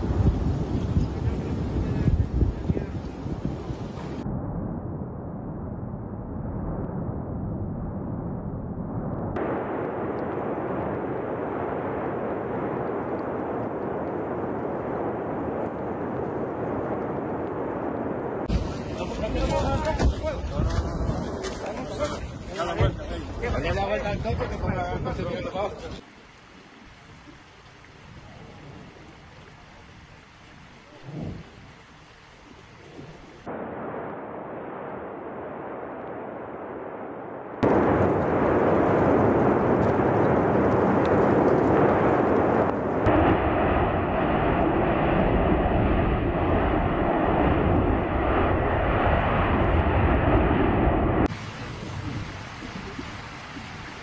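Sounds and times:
steady rushing noise: 0:00.0 - 0:26.0
steady rumbling roar: 0:32.8 - 0:52.9.

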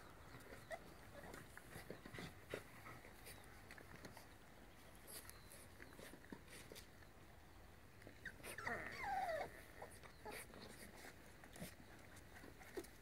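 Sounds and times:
puppy whimpering: 0:08.0 - 0:12.8.

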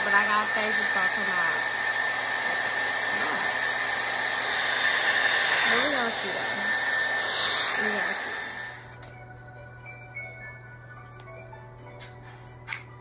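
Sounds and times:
hair dryer blowing: 0:00.0 - 0:09.1.

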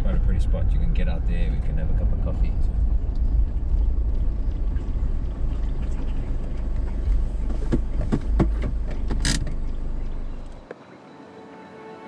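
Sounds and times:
road and wind rumble: 0:00.0 - 0:11.2
vehicle knocks and rattles: 0:01.5 - 0:10.2.

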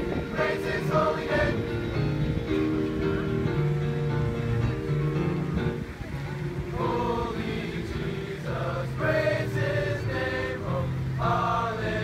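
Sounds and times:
voices singing a chant: 0:00.0 - 0:01.8, 0:06.7 - 0:12.0.

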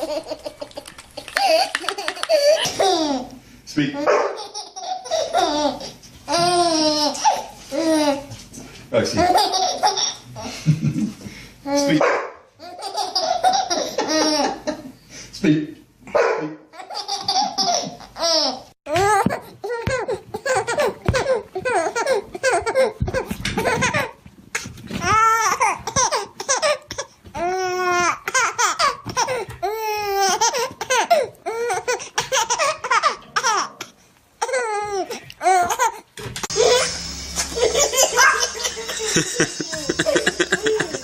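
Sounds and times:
baby laughing: 0:00.0 - 0:03.4, 0:04.0 - 0:08.3, 0:09.2 - 0:10.6, 0:12.6 - 0:14.8, 0:16.8 - 0:24.2, 0:25.0 - 0:33.8, 0:34.4 - 0:41.0
steady background hum: 0:16.7 - 0:41.0
other laughter: 0:36.6 - 0:41.0.

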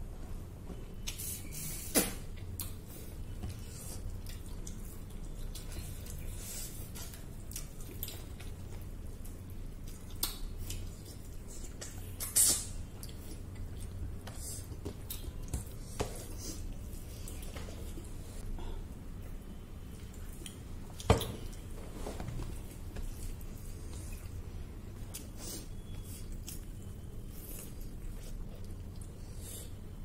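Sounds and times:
low steady hum: 0:00.0 - 0:30.0
wet chewing and lip smacks: 0:07.0 - 0:15.8.

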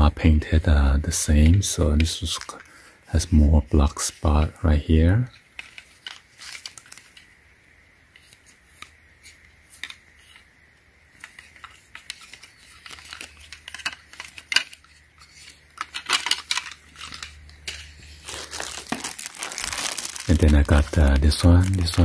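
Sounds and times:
tags rustling: 0:11.1 - 0:22.0
plastic frames clicking together: 0:15.8 - 0:17.8.

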